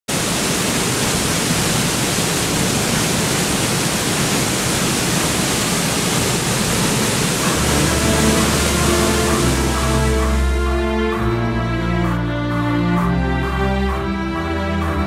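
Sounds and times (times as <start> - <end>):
waterfall rushing: 0.1 - 15.0
music: 7.4 - 15.0.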